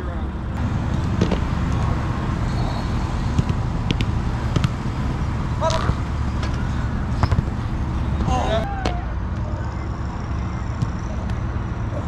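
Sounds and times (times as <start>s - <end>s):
wind buffeting microphone: 0.3s - 12.0s
soccer balls struck: 0.6s - 9.5s, 10.6s - 11.5s
person shouting: 8.2s - 9.2s.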